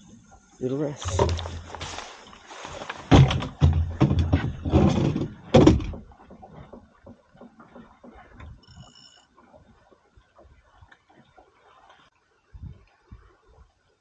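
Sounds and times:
handling bumps and rustling: 0:01.0 - 0:08.5.

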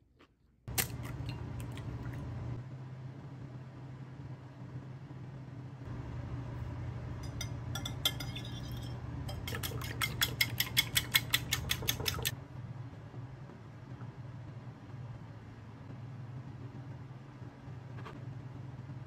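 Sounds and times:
low steady hum: 0:00.5 - 0:19.0
whisk clicking against bowl: 0:09.3 - 0:12.3.

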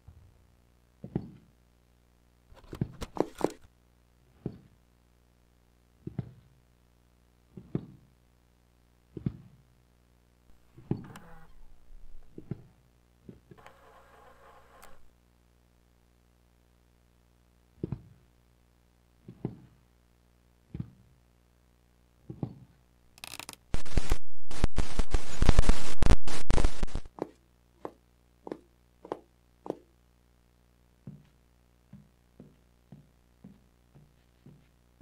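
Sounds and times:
slow footsteps: 0:22.2 - 0:30.0, 0:31.0 - 0:35.0
running footsteps: 0:31.1 - 0:34.8.

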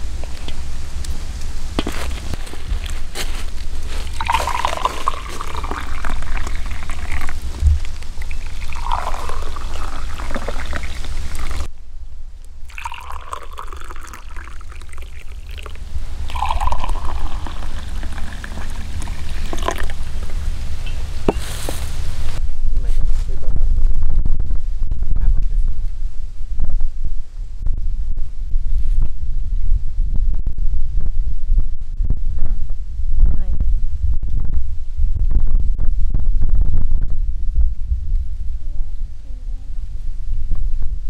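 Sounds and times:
drink pouring into glass mugs: 0:03.9 - 0:11.7, 0:12.7 - 0:20.1.

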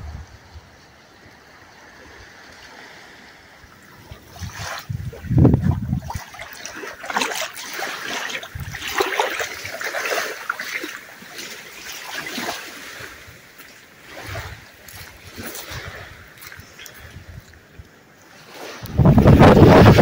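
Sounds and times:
wind buffeting microphone: 0:00.0 - 0:00.9, 0:03.7 - 0:07.4, 0:08.2 - 0:10.0, 0:14.1 - 0:18.0, 0:18.6 - 0:20.0
small waves splashing: 0:00.0 - 0:20.0.

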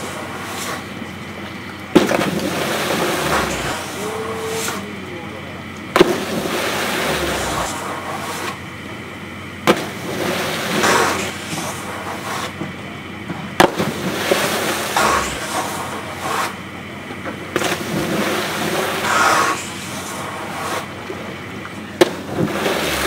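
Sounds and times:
snowboards slapping onto water: 0:02.0 - 0:04.0, 0:06.0 - 0:08.6, 0:09.7 - 0:12.6, 0:17.6 - 0:20.9, 0:22.0 - 0:23.0
hissing splashes: 0:02.0 - 0:05.0, 0:06.0 - 0:08.6, 0:09.8 - 0:12.6, 0:13.8 - 0:16.6, 0:17.6 - 0:21.0, 0:22.2 - 0:23.0.

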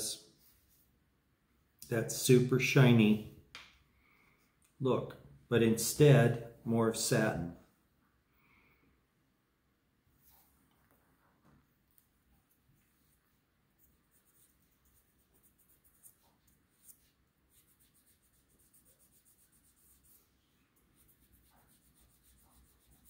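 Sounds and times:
faint scratchy rubbing: 0:12.8 - 0:23.0.

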